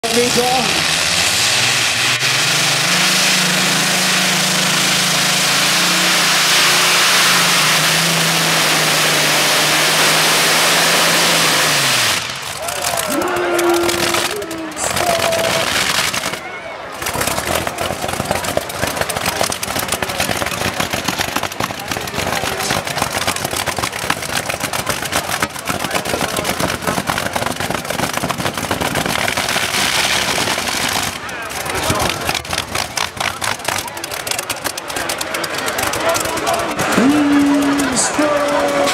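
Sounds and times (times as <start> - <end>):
tractor engine at full throttle: 0.0 - 38.9.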